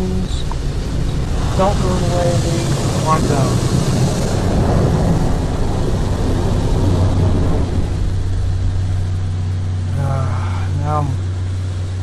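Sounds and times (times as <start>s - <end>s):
car wash machinery humming: 0.0s - 12.0s
car wash machinery rushing: 0.8s - 10.1s.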